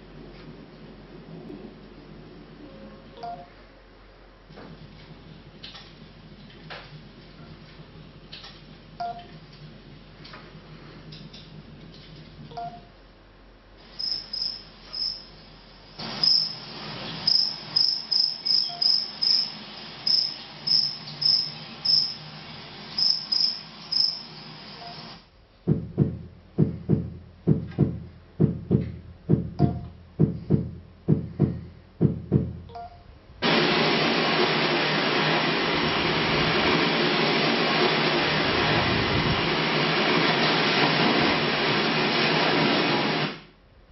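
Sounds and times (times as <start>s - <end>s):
crickets chirping: 13.9s - 15.4s, 16.0s - 22.3s, 22.9s - 25.0s
heartbeat thumps: 25.6s - 32.8s.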